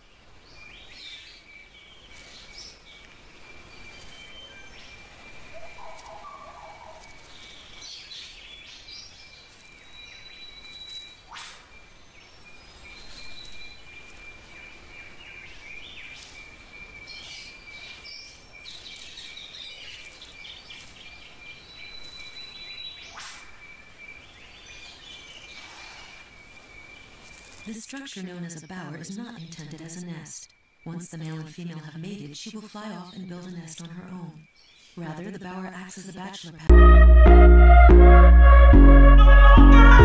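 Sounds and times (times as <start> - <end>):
birds chirping and calling: 0.9 - 27.8
sharp upward sweeping calls: 36.7 - 40.0.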